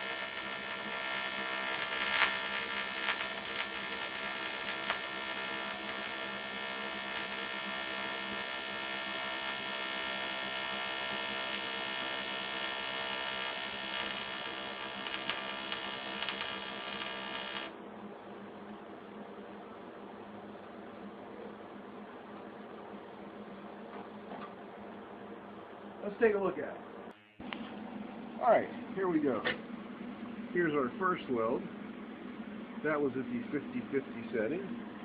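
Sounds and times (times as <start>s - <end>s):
welding arc buzzing: 0.0s - 17.8s, 27.1s - 29.7s.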